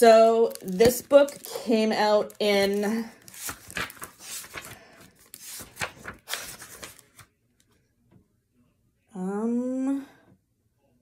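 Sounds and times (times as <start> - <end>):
book pages rustling: 0.5 - 7.3.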